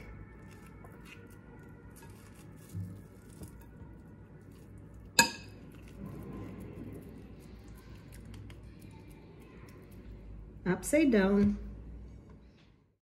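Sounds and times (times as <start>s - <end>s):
food handling sounds: 0.0s - 10.0s
metal spoon clinking glass bowl: 4.5s - 6.0s.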